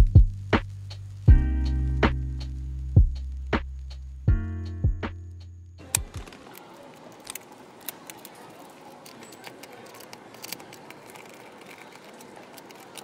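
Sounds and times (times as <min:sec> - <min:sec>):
small irregular clicks: 0:05.9 - 0:13.0
paper rustling: 0:06.0 - 0:13.0.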